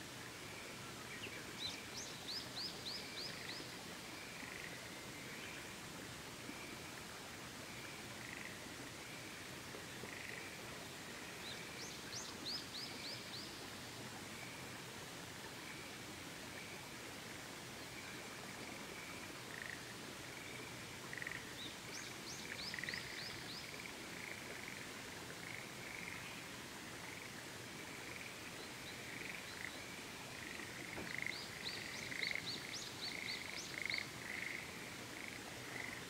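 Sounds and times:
faint hiss: 0.0s - 36.0s
frogs croaking: 1.7s - 5.8s, 7.7s - 13.5s, 17.9s - 36.0s.

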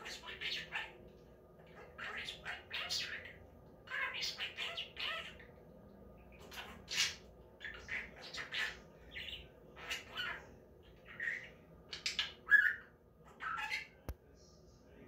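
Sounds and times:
budgerigar chirps and squawks: 1.8s - 5.5s, 6.4s - 14.0s.

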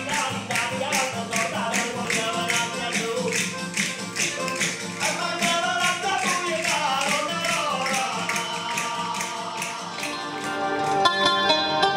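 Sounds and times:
folk melody: 0.0s - 11.9s.

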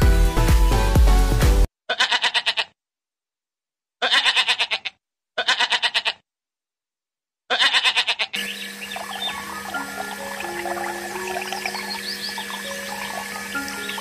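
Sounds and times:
wavering bleating calls: 1.9s - 2.8s, 4.0s - 6.2s, 7.5s - 14.0s.

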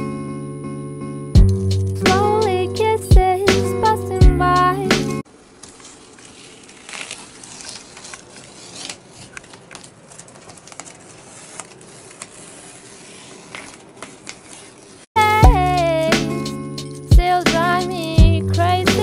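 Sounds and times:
tape crackling and clicking: 5.3s - 15.1s.

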